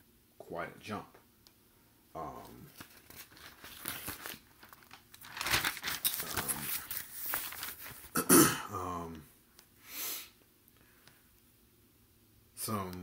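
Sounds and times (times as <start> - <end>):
rustling handling noise: 2.3 - 8.2
man coughing: 8.1 - 8.8.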